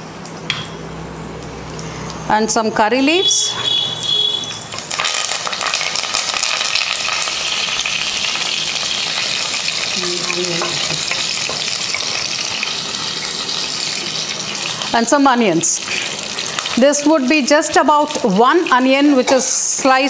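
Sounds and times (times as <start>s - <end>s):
leaves sizzling in hot oil: 4.5s - 20.0s.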